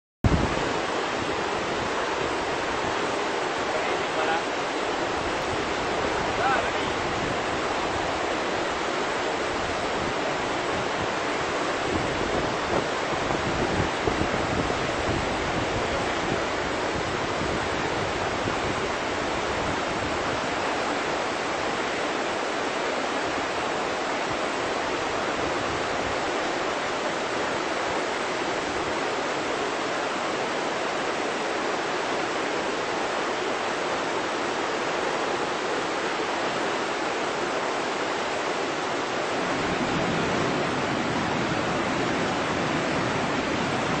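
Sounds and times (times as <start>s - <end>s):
river rushing over rocks: 0.2s - 44.0s.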